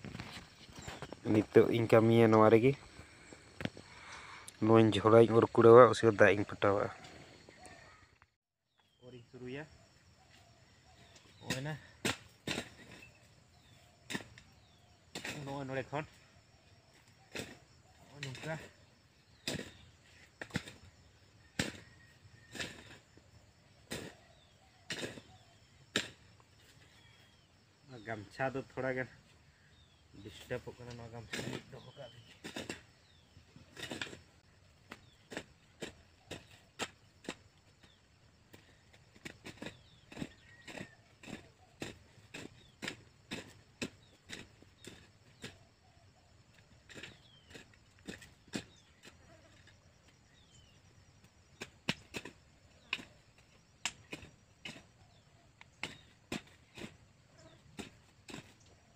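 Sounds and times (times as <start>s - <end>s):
birds chirping: 0.0s - 58.9s
hoe chopping into soil: 11.4s - 15.6s, 19.3s - 23.1s, 23.9s - 26.3s, 31.3s - 34.2s, 34.8s - 45.6s, 46.9s - 50.8s, 51.5s - 58.6s.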